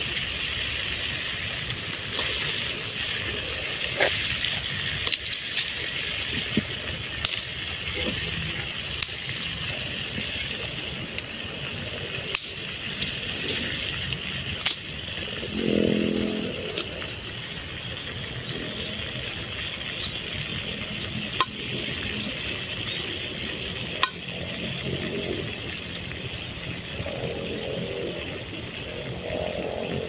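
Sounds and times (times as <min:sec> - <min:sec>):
fritters sizzling in hot oil: 0:00.0 - 0:28.7
low pitched hum: 0:00.0 - 0:30.0
pops and crackles of fire: 0:05.0 - 0:10.4, 0:11.0 - 0:15.2.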